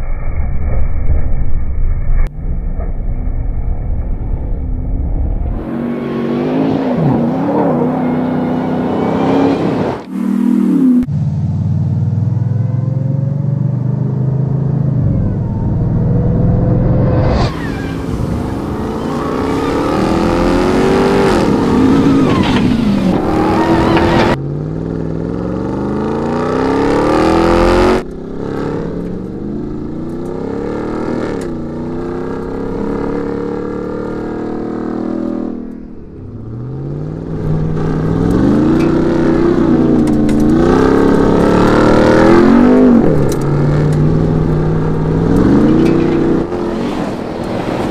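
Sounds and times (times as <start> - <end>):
truck engine revving hard: 16.0 - 35.6, 36.3 - 47.9.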